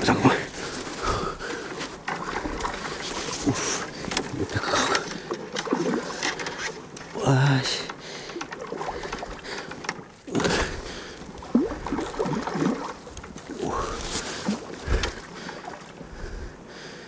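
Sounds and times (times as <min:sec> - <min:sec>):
fish splashing in water: 0:08.1 - 0:15.9.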